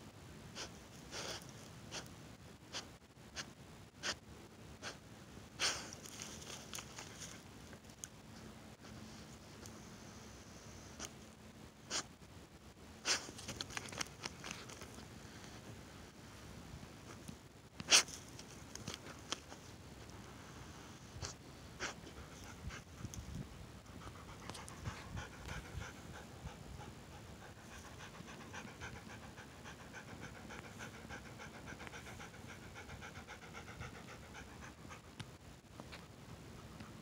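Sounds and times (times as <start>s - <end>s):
rapid panting: 23.9s - 35.2s.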